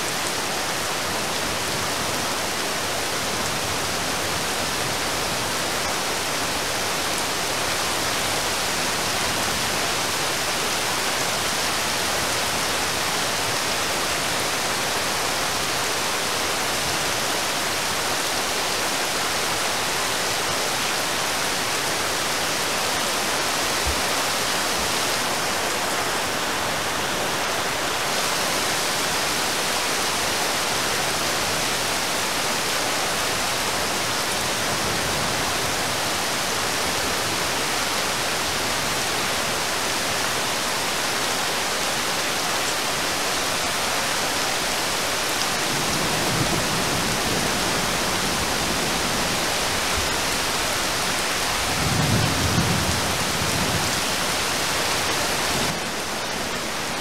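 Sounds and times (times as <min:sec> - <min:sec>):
heavy rain on water: 0:00.0 - 0:57.0.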